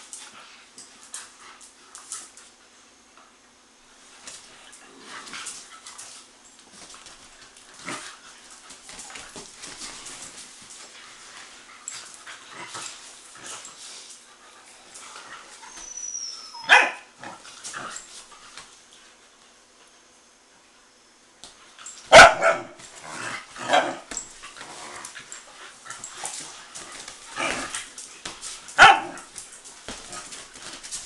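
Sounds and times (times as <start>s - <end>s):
dogs scuffling: 3.9s - 19.0s, 21.4s - 31.0s
dogs barking and yipping: 15.5s - 17.2s, 22.0s - 23.0s, 23.6s - 24.4s, 25.7s - 29.5s.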